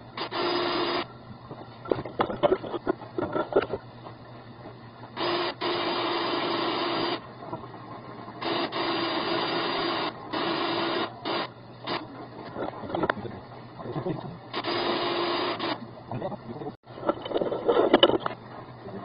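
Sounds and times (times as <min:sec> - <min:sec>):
drain cleaning machine motor humming: 0:05.1 - 0:07.6, 0:08.4 - 0:16.7.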